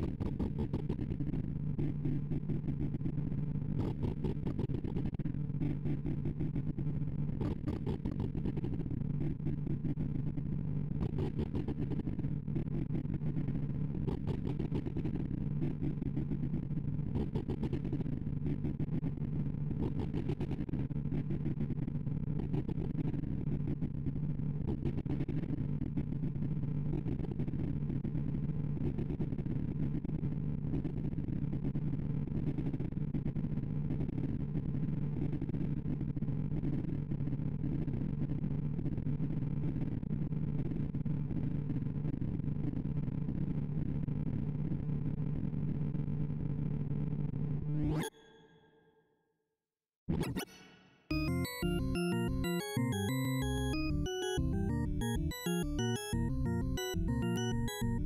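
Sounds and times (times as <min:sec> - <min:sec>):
synthesized beeps: 0:51.1 - 0:58.0.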